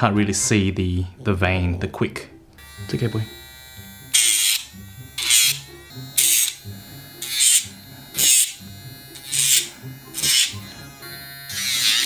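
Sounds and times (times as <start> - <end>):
electric nail grinder humming: 2.6 - 12.0
grinder drum grinding toenail: 2.6 - 12.0.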